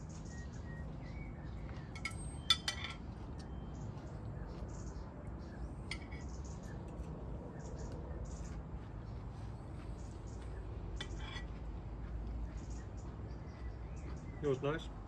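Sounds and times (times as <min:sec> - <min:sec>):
birds chirping: 0:00.0 - 0:15.0
forks clinking on plate and bowl: 0:02.0 - 0:03.1.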